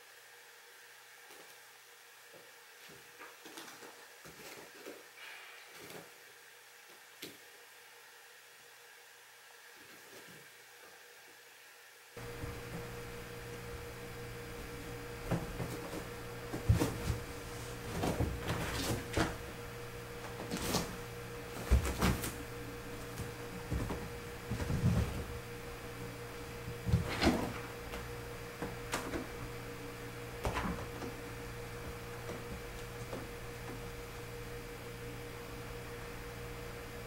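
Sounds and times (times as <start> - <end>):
steady low hum: 12.2 - 37.0.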